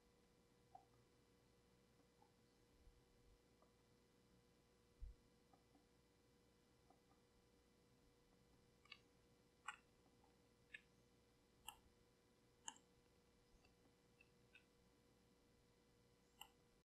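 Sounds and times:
faint steady hum: 0:00.0 - 0:16.8
faint computer mouse clicks: 0:08.8 - 0:09.9, 0:10.7 - 0:10.9, 0:11.6 - 0:11.8, 0:12.6 - 0:12.9, 0:16.4 - 0:16.6.

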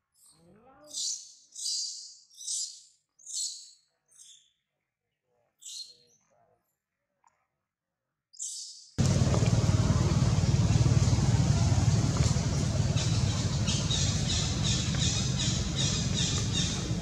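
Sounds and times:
low engine rumble: 0:09.0 - 0:17.0.

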